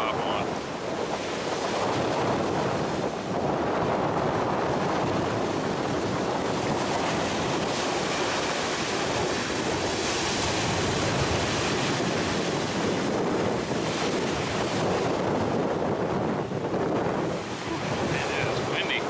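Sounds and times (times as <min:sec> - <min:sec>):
wind on microphone: 0:00.0 - 0:19.0
waves washing on pebble beach: 0:05.2 - 0:15.4, 0:17.2 - 0:19.0.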